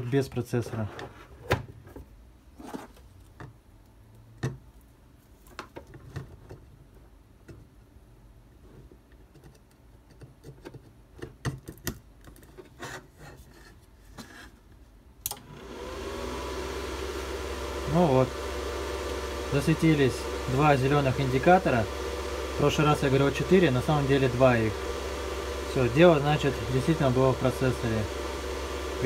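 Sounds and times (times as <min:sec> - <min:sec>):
cooling fan starting: 0:15.2 - 0:29.0.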